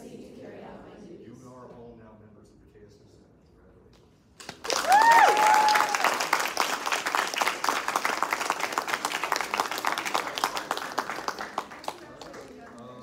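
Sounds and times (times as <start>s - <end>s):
audience applauding: 4.4s - 13.0s
high cheer: 4.6s - 11.8s.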